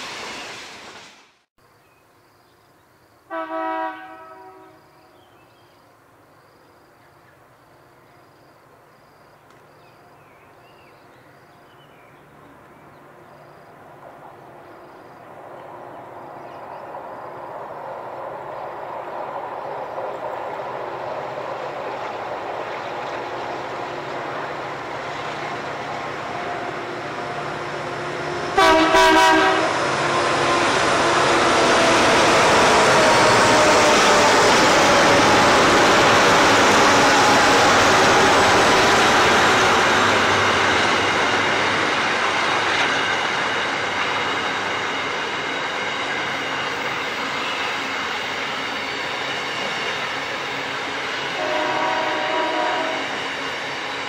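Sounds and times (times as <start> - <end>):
diesel locomotive engines passing: 0.0 - 1.5, 3.2 - 54.0
train horn blast: 3.3 - 4.9, 28.4 - 31.3, 51.3 - 53.2.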